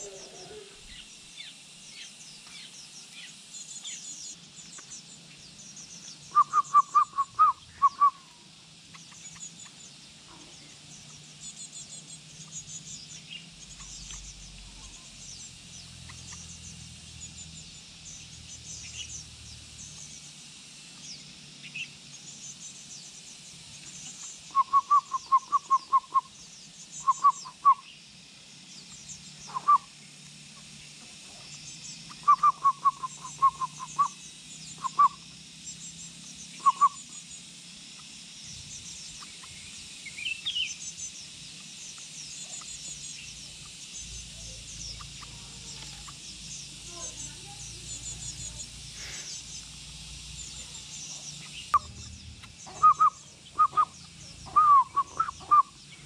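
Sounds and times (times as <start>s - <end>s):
bird hooting calls: 0.0s - 1.3s, 6.3s - 8.5s, 24.2s - 26.4s, 27.0s - 27.9s, 29.4s - 30.0s, 32.1s - 35.2s, 36.6s - 37.1s, 50.4s - 55.8s
insects chirring: 0.0s - 56.0s.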